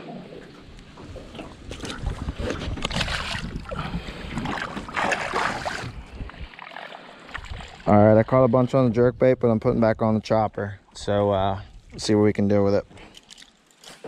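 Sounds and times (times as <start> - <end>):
water splashing and swishing: 0.0 - 8.8.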